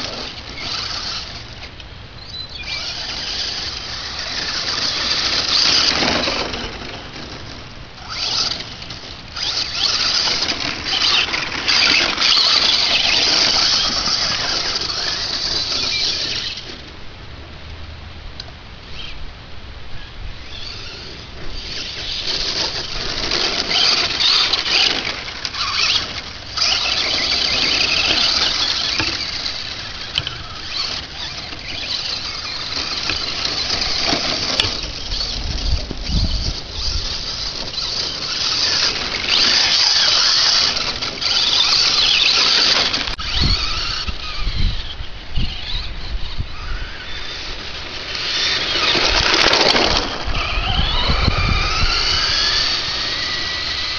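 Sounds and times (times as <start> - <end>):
electric motor whining: 0.0 - 16.9, 20.4 - 53.9.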